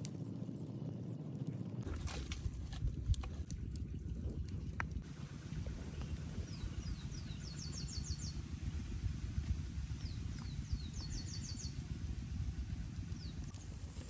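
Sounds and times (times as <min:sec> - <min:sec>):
low rumble: 0:00.0 - 0:14.0
songbird singing: 0:05.5 - 0:09.0, 0:09.9 - 0:12.0, 0:13.0 - 0:14.0.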